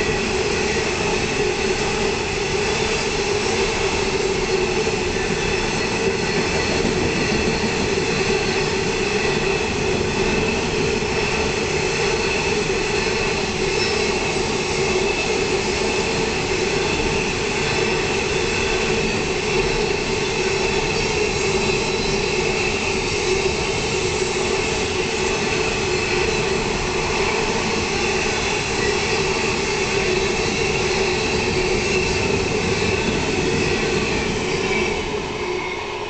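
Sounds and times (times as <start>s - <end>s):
train wheels rumbling on rail: 0.0s - 36.0s
high ringing tone: 13.6s - 14.4s.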